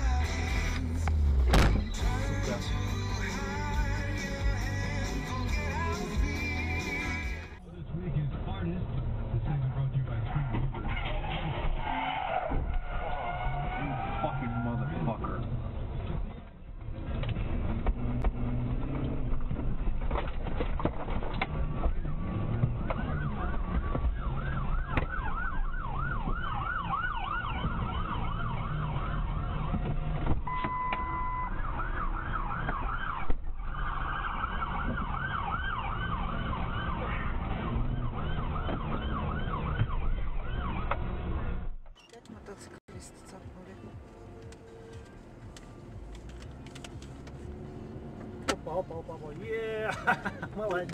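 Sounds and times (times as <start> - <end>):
car engine and road noise: 0.0 - 50.9
police siren yelping: 22.7 - 29.8, 30.5 - 41.1
brief steady tone: 30.5 - 31.6.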